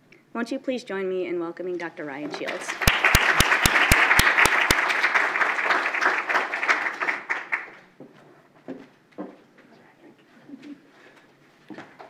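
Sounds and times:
audience applauding: 2.4s - 7.9s
loud single claps near microphone: 2.7s - 7.8s.

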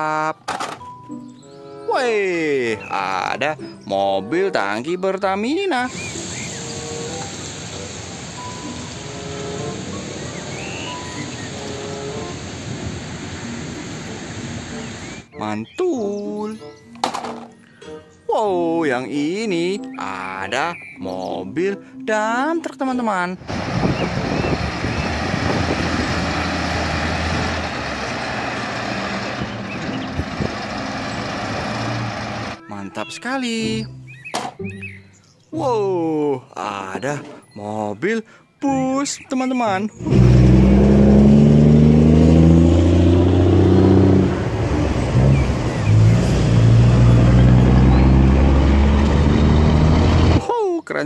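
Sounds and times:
steady hiss: 5.9s - 10.6s
diesel truck engine running: 5.9s - 15.2s, 23.4s - 32.6s, 40.0s - 50.4s.

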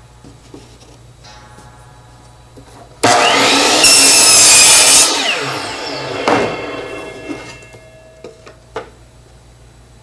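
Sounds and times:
miter saw cutting plank: 3.0s - 7.8s
saw motor spinning down: 3.0s - 7.8s.

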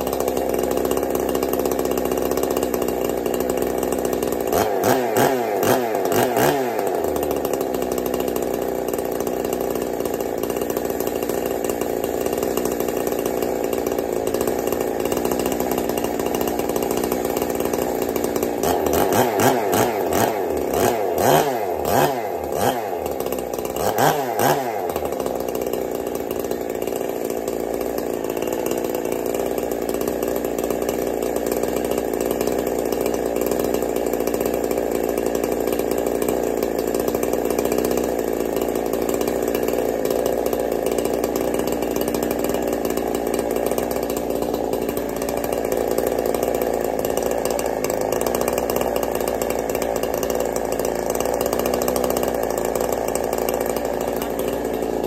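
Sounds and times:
chainsaw running: 0.0s - 55.0s.

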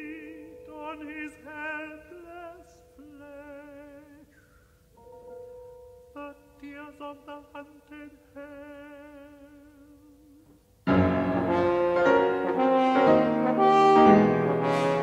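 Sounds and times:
tenor singing with vibrato: 0.0s - 4.9s, 5.9s - 15.0s
french horn and piano march: 10.9s - 15.0s.

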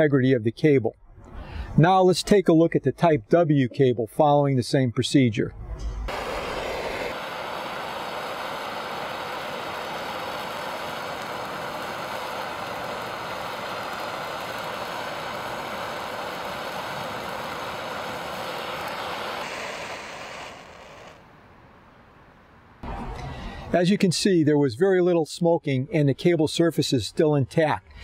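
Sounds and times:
gas torch hissing: 6.1s - 21.3s.

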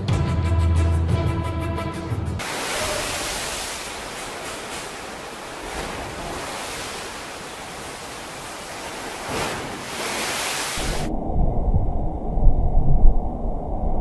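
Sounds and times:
pool water sloshing and surging: 2.4s - 11.1s
muffled low rumbling: 11.1s - 14.0s.

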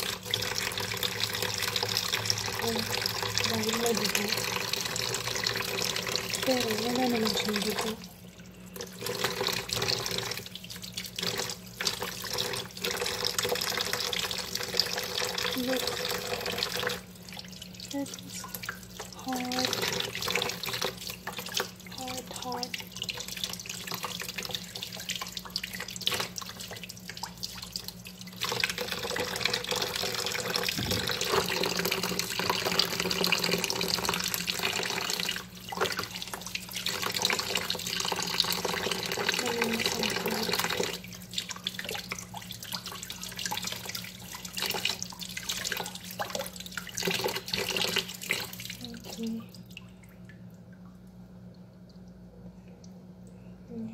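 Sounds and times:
tap water splashing into bowl: 22.7s - 51.0s.

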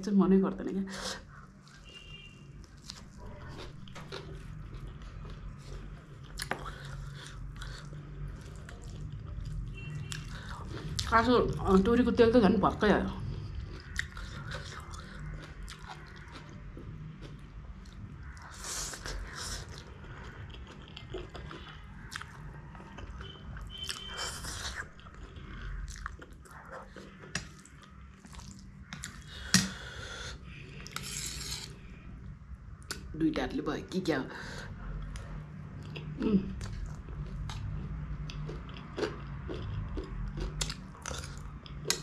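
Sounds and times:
chewing with wet clicks: 2.6s - 11.6s, 13.2s - 30.0s, 35.0s - 42.0s.

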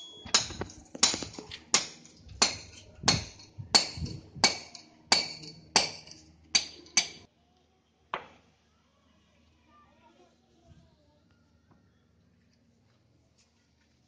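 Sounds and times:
hammer striking steel chisel: 0.0s - 7.3s.

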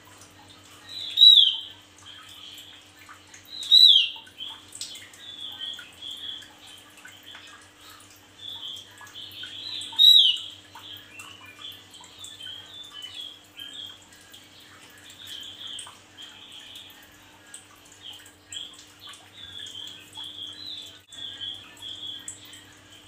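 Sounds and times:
soft rapid bird twittering: 0.7s - 23.0s
sharp down-slurred bird calls: 0.9s - 1.7s, 3.6s - 4.6s, 8.5s - 11.8s.

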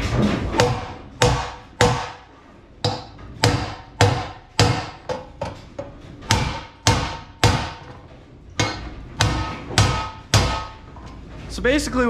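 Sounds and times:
hammer striking metal punch: 0.4s - 5.6s, 6.2s - 8.0s, 8.6s - 10.9s.

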